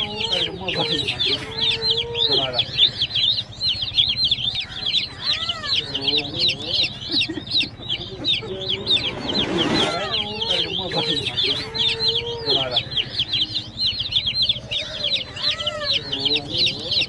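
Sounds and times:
chicks peeping: 0.0 - 17.0
lower calls: 0.0 - 17.0.

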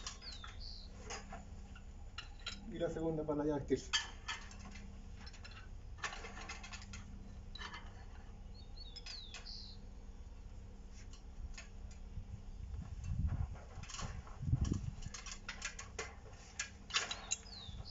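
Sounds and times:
bird chirping: 0.0 - 1.0, 8.4 - 9.9, 17.1 - 17.9.

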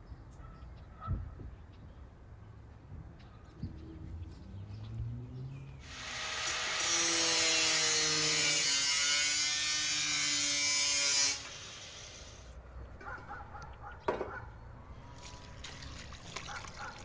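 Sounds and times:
angle grinder cutting metal: 5.8 - 12.5.

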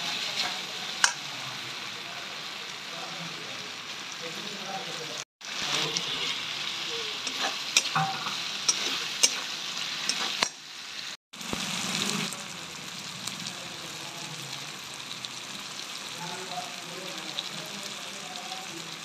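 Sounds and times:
steel spatula scraping a wok: 0.0 - 1.2, 5.5 - 10.6
tomatoes sizzling in hot oil: 0.0 - 19.0.

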